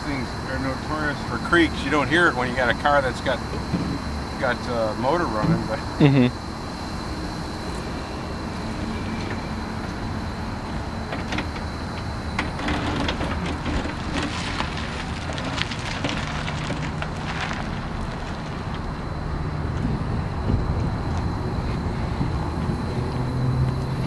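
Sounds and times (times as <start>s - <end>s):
low steady rumble: 0.0s - 24.0s
tyres crunching over gravel: 12.4s - 20.1s.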